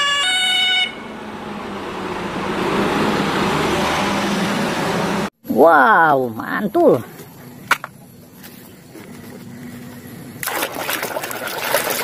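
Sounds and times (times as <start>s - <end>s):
two-tone siren: 0.0s - 1.5s
truck engine and tyre noise: 0.0s - 5.4s, 6.8s - 10.4s.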